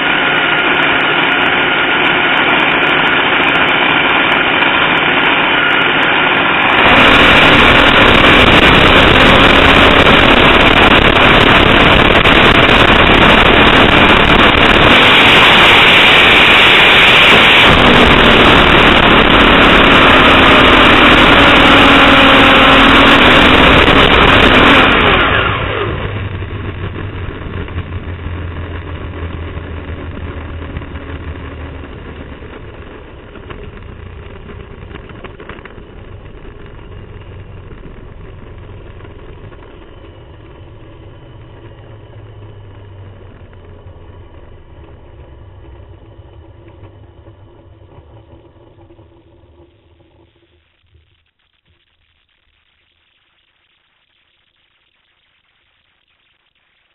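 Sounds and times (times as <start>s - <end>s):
loud drag car engine: 0.0s - 51.4s
wind: 0.0s - 56.9s
low rumble: 6.6s - 53.0s
chassis rattle: 25.4s - 51.1s.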